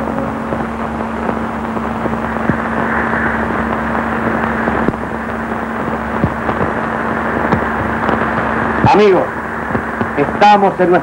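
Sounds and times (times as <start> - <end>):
film soundtrack hiss: 0.0 - 11.0
low hum: 0.0 - 11.0
clicks and crackles: 3.5 - 9.0.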